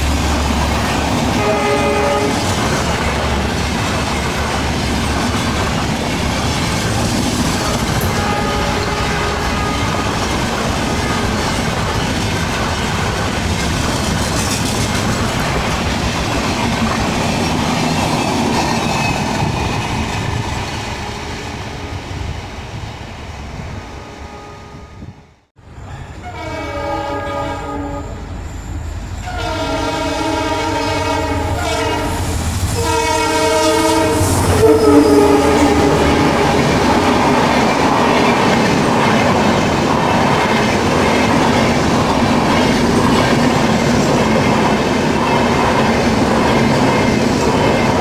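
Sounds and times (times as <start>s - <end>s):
train coaches clattering over rails: 0.0s - 21.6s, 28.0s - 48.0s
locomotive horn blasts: 1.4s - 2.5s, 7.6s - 10.2s, 24.0s - 25.2s, 26.2s - 28.2s, 29.2s - 32.2s, 32.8s - 37.2s.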